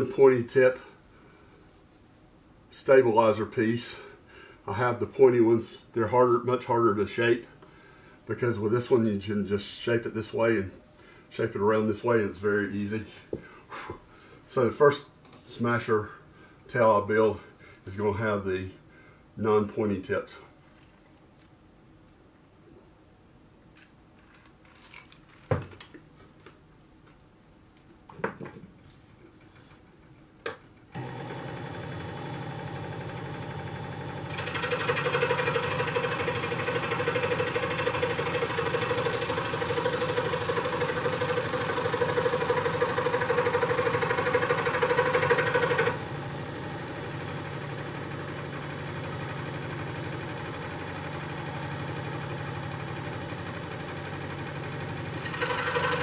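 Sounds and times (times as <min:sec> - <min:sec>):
jigsaw cutting wood: 0:31.0 - 0:56.0.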